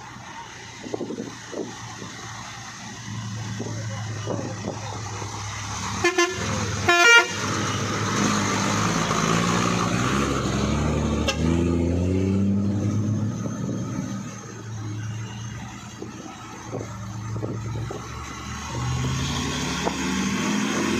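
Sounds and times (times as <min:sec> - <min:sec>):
diesel truck engine rumbling: 0:00.0 - 0:20.9
truck air horn: 0:06.0 - 0:07.6, 0:11.2 - 0:11.6.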